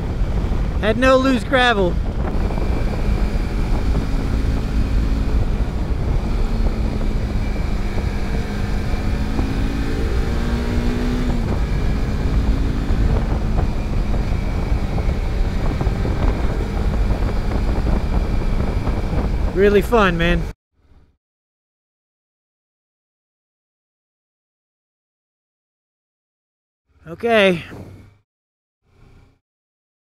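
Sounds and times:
wind and road noise: 0.0s - 21.1s, 26.9s - 28.2s
motorcycle engine running: 1.8s - 20.4s.

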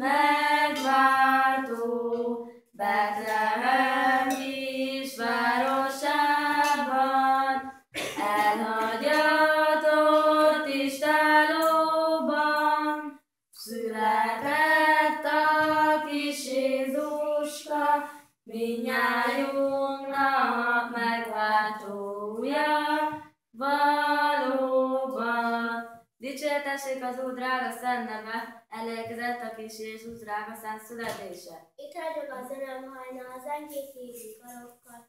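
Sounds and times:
children singing a carol: 0.0s - 25.9s.

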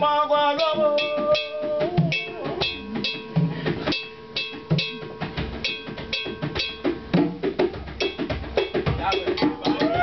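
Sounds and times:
hand drums playing: 0.0s - 10.0s
struck metal bell ringing: 0.6s - 7.2s, 9.0s - 10.0s.

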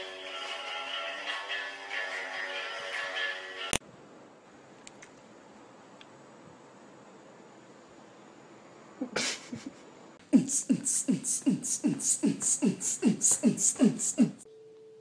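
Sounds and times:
beatbox-like rhythmic beat: 10.2s - 14.4s.

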